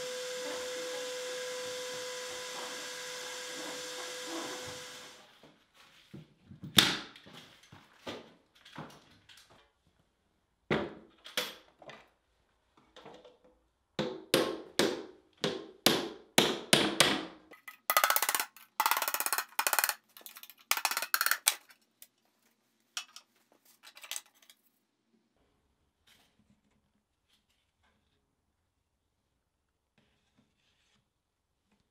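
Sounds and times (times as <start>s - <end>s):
tin lid clinking and rattling: 17.6s - 21.7s.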